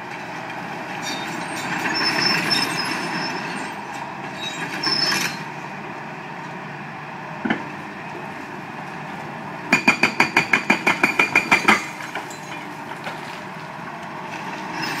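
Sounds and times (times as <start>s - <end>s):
hydraulic breaker hammering concrete: 9.7s - 11.9s.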